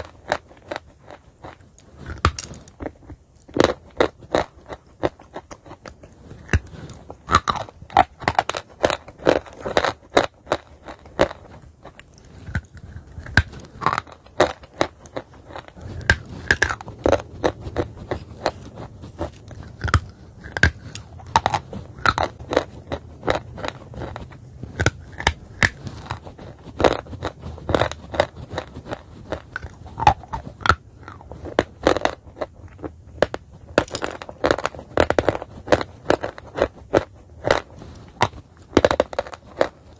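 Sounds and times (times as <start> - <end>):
chalk being bitten and chewed: 0.0 - 39.9.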